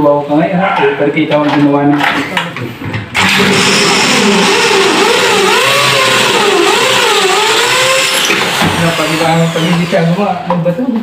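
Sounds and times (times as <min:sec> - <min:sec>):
electric drill motor whine: 0:03.2 - 0:10.3.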